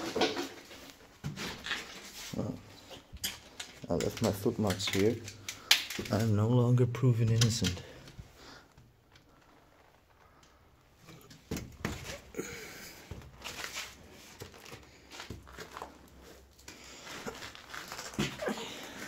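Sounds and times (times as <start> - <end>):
footsteps crunching on debris: 13.0 - 19.0.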